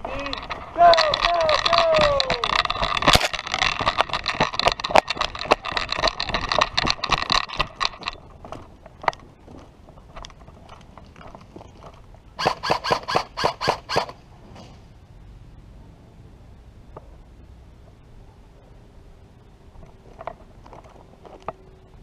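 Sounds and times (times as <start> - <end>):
footsteps crunching on gravel: 0.0 - 12.3
gear rattling: 0.0 - 13.2
airsoft rifle rapid shots: 12.4 - 14.2.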